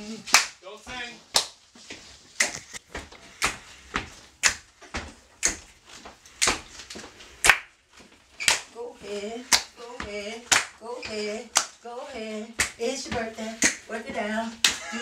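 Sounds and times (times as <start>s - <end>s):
handclaps keeping a beat: 0.2s - 1.7s, 2.3s - 2.8s, 3.4s - 4.7s, 5.4s - 5.7s, 7.4s - 7.8s, 8.4s - 8.7s, 9.4s - 11.8s, 12.5s - 15.0s.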